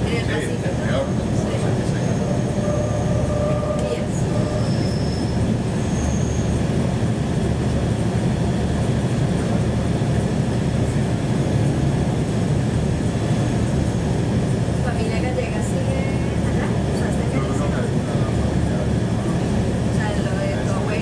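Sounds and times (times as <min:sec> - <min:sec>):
tram rumbling on rails: 0:00.0 - 0:21.0
wheel squeals: 0:01.9 - 0:06.6.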